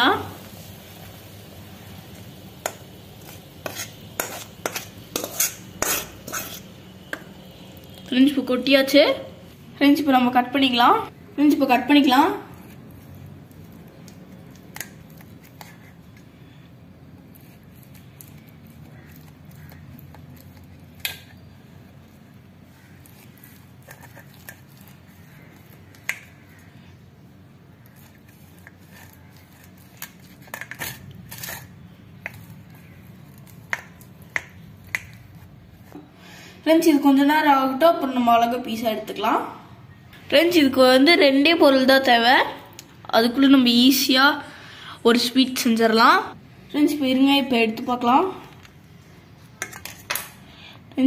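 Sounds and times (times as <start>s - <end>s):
spoon scraping and knocking a pan: 2.6s - 7.4s.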